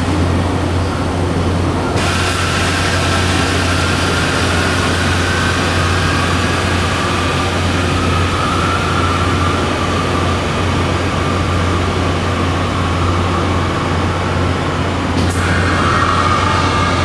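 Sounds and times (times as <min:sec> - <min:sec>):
machinery humming: 0:00.0 - 0:17.0
rushing noise: 0:00.0 - 0:17.0
high whistling tone: 0:02.4 - 0:14.4.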